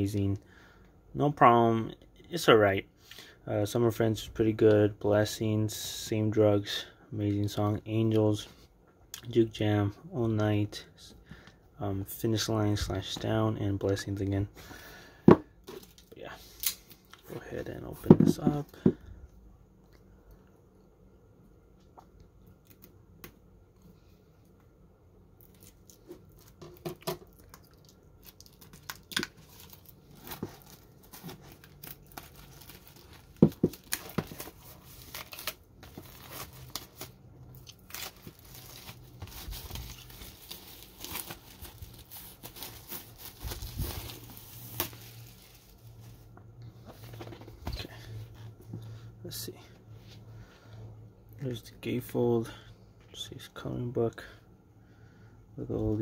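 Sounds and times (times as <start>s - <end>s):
plastic wrap snapping: 25.4s - 45.5s
plastic shrink wrap crinkling: 25.4s - 46.1s.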